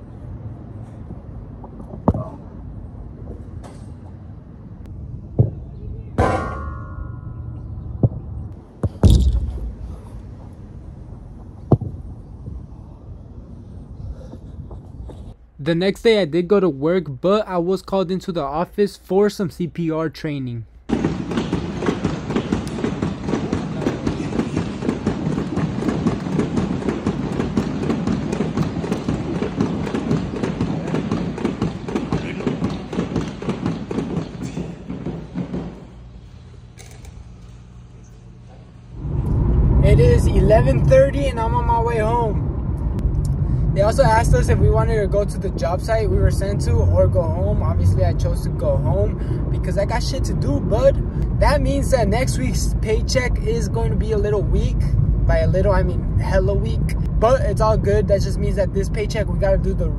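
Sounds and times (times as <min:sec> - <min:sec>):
ball kicks thumping: 0:08.8 - 0:09.8
loud bang: 0:08.8 - 0:10.2
manikin chest compressions clatter: 0:21.4 - 0:35.9.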